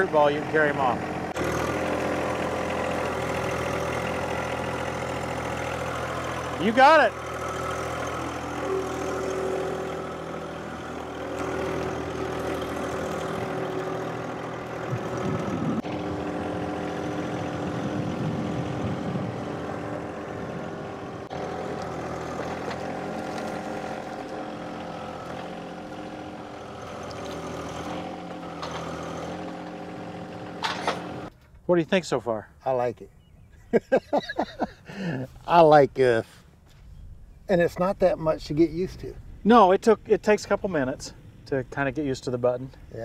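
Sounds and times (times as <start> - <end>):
tractor diesel engine running: 0.0 - 32.9.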